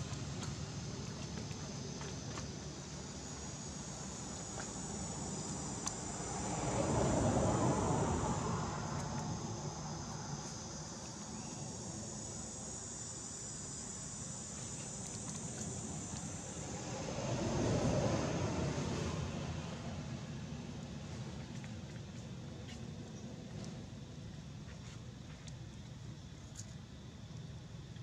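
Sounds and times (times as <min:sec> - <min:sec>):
insects droning: 0:00.0 - 0:28.0
broad rushing noise: 0:04.4 - 0:11.0.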